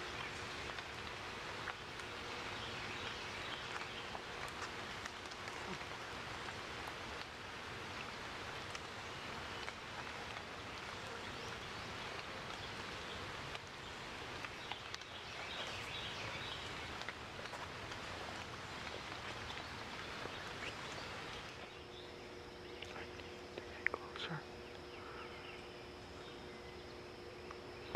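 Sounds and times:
even outdoor hiss: 0.0s - 27.9s.

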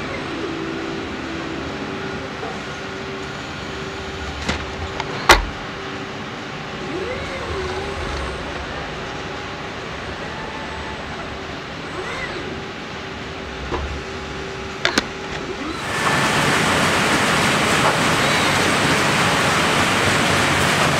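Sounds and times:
brief whine: 0.0s - 16.9s, 17.8s - 19.6s
faint hum: 0.0s - 20.9s
robotic machine running: 6.8s - 20.9s.

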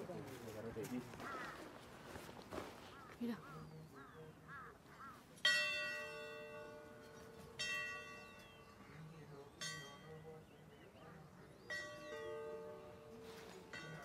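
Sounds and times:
metal temple bell ringing: 5.4s - 10.5s, 11.6s - 14.0s.

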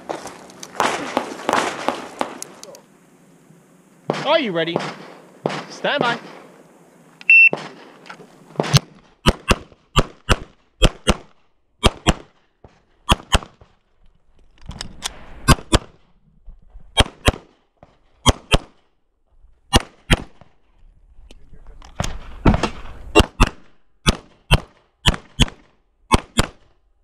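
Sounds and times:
pistol shots in quick pairs: 4.1s - 6.5s, 7.5s - 8.0s, 8.6s - 12.4s, 13.1s - 13.6s, 17.0s - 17.6s, 18.2s - 18.8s, 19.7s - 20.4s, 22.5s - 26.7s
shot timer beep: 7.2s - 7.5s.

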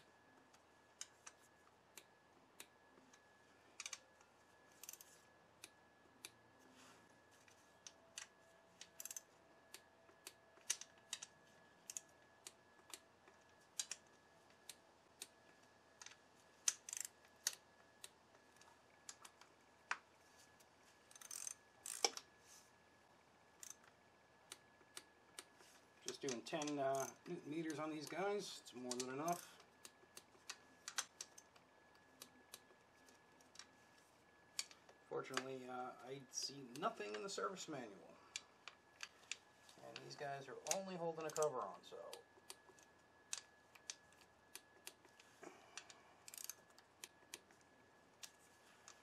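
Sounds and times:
hand ratchet clicking: 4.8s - 5.7s, 8.9s - 11.3s, 16.0s - 18.2s, 21.1s - 22.2s, 23.6s - 23.9s, 26.1s - 28.2s, 45.8s - 47.4s.

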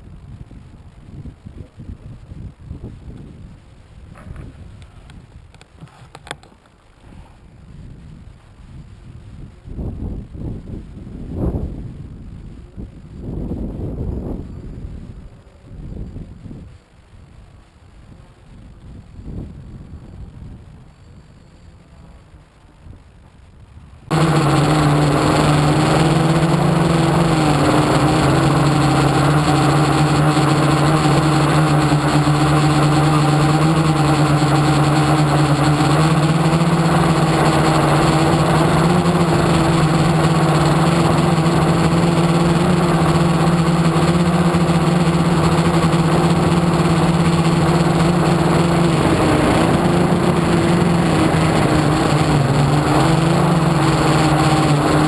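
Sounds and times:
model aircraft motor running: 24.1s - 55.0s.

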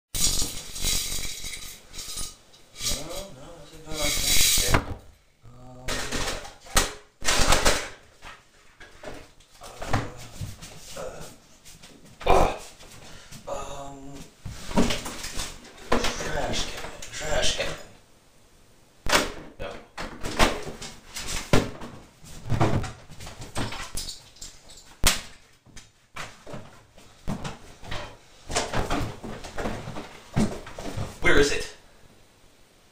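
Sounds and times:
person speaking: 2.8s - 6.8s, 9.6s - 11.4s, 13.4s - 14.4s, 15.9s - 18.0s
objects clattering on wooden dresser: 5.9s - 10.8s, 19.1s - 25.0s, 26.2s - 31.2s.

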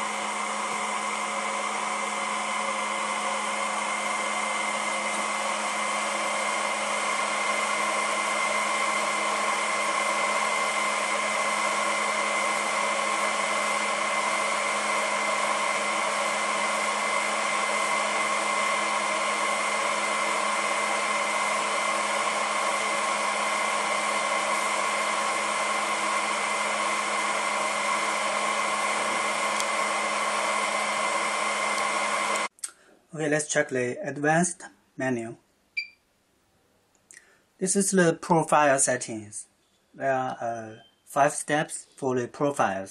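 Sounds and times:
hot-air blower running: 0.0s - 32.6s.

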